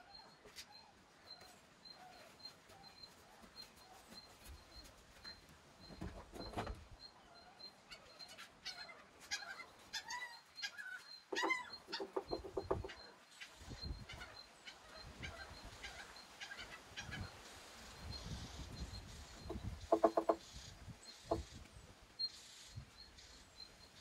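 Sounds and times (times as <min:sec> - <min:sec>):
chickens clucking: 0:07.9 - 0:17.4, 0:18.0 - 0:21.6
high bird chirps: 0:10.3 - 0:13.1.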